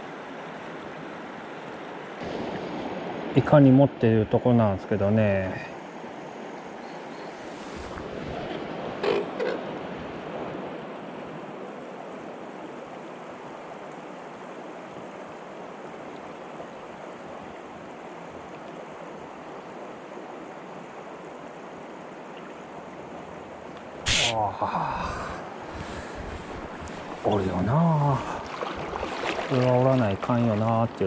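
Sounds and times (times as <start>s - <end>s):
river rushing over stones: 7.5s - 31.0s
knocks or splashes: 26.8s - 31.0s.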